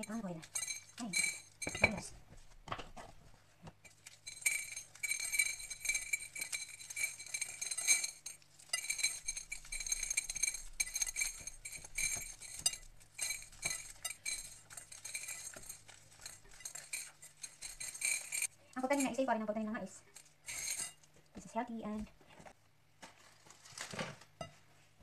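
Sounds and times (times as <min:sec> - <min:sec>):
popcorn kernels rattling into a bowl: 0:00.0 - 0:02.1, 0:03.9 - 0:19.2, 0:20.2 - 0:21.0.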